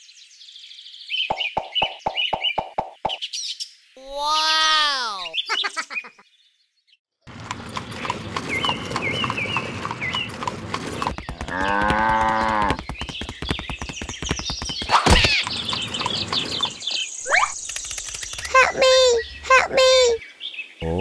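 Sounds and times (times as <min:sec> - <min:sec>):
fast clicks: 0:07.4 - 0:16.9, 0:17.6 - 0:18.8
cow mooing: 0:11.5 - 0:12.8.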